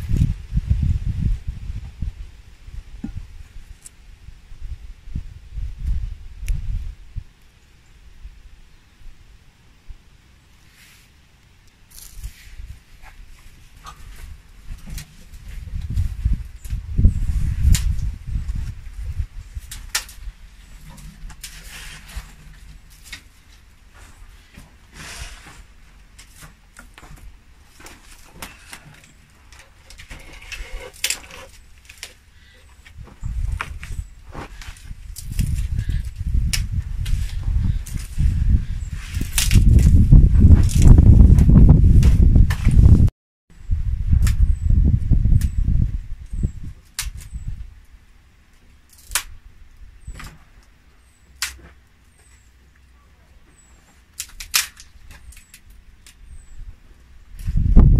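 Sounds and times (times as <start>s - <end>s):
branches rustling: 10.6s - 43.0s
push broom sweeping stone floor: 17.3s - 32.2s
twigs snapping: 17.6s - 18.1s, 19.6s - 23.6s, 26.2s - 32.9s, 33.5s - 37.2s, 39.1s - 41.0s, 46.8s - 47.4s, 48.9s - 49.4s, 51.4s - 51.8s, 54.1s - 56.2s.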